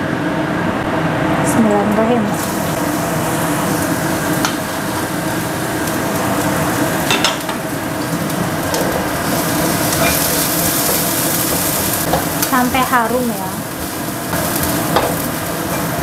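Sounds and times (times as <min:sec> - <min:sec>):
garlic sizzling in hot oil: 0:02.2 - 0:16.0
spatula stirring in wok: 0:02.5 - 0:13.0.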